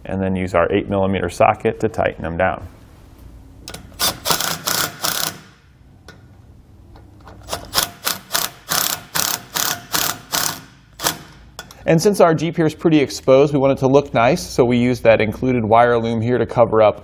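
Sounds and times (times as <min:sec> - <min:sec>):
impact driver hammering screws: 0:03.7 - 0:05.6, 0:07.4 - 0:11.4.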